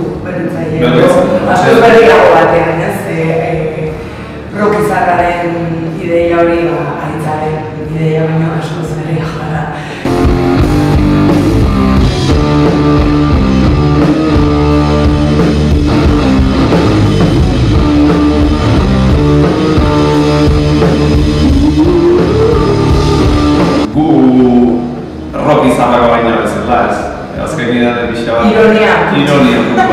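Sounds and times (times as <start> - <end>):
electric guitar: 10.0 - 23.9
drum kit: 10.1 - 24.4.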